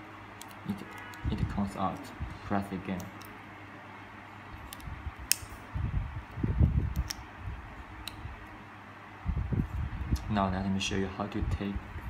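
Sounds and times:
steady background hum: 0:00.0 - 0:12.0
sharp plastic clicks: 0:04.6 - 0:05.6, 0:06.6 - 0:07.2.

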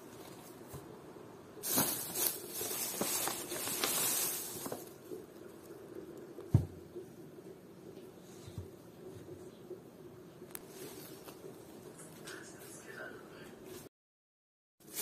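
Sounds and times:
plastic bags rustling: 0:01.6 - 0:05.2
dull thump: 0:06.5 - 0:06.8.

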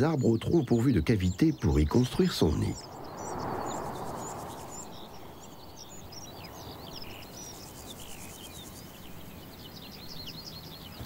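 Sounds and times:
songbirds chirping: 0:00.0 - 0:11.0
steady background hiss: 0:00.0 - 0:11.0
soft rushing noise: 0:02.0 - 0:07.7.

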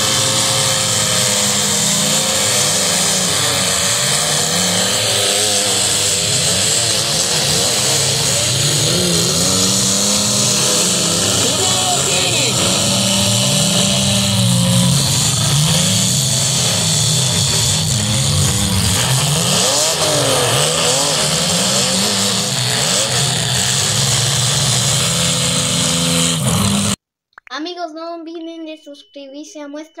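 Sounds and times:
car engines revving hard: 0:00.0 - 0:27.0.

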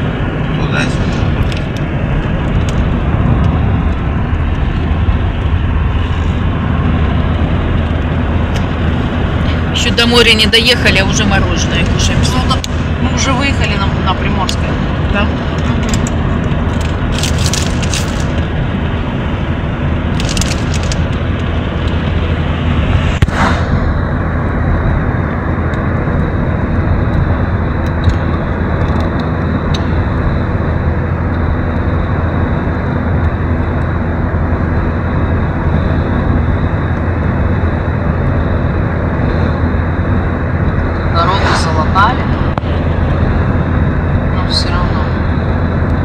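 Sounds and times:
car engine and tyre rumble: 0:00.0 - 0:46.0.

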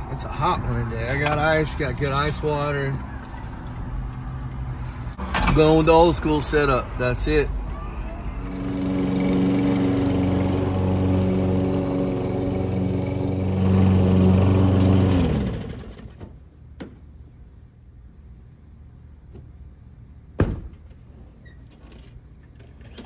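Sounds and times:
engine spinning down: 0:08.4 - 0:16.2
lawn mower engine running: 0:08.4 - 0:16.3.

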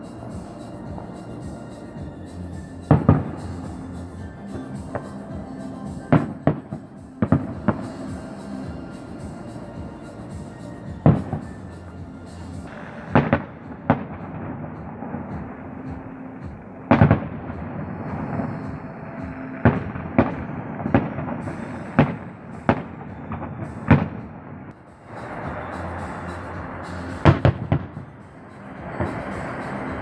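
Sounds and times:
firework shells bursting: 0:12.7 - 0:15.7.

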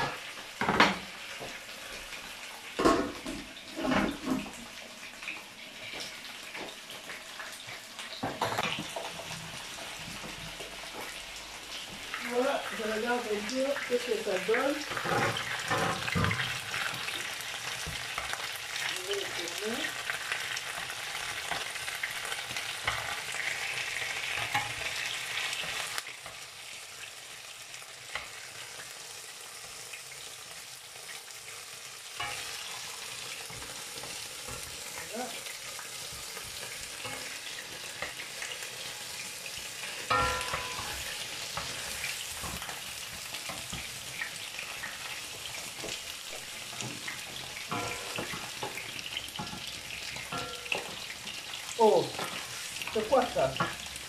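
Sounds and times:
chicken sizzling in hot oil: 0:00.0 - 0:54.0
wooden spoon scraping a pan: 0:13.9 - 0:26.0, 0:32.2 - 0:54.0.

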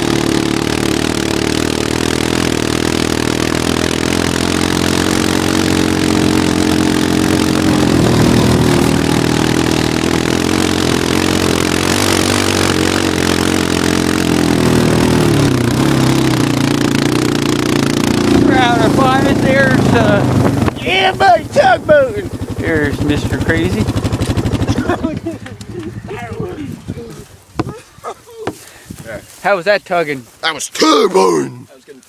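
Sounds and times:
quad engine running under load: 0:00.0 - 0:27.8
loud steady rushing noise: 0:04.6 - 0:25.0.

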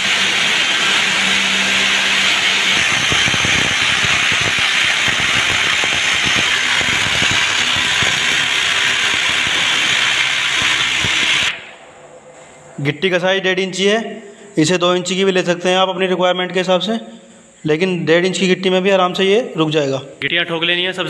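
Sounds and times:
hammer drill boring into wall: 0:00.0 - 0:11.6.

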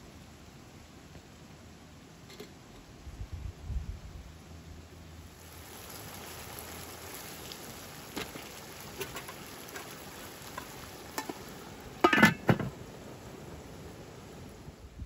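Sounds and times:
stew sizzling and bubbling in pan: 0:05.0 - 0:15.0
spatula scraping a pan: 0:08.2 - 0:11.4
metal lid clattering onto pan: 0:12.0 - 0:12.7.

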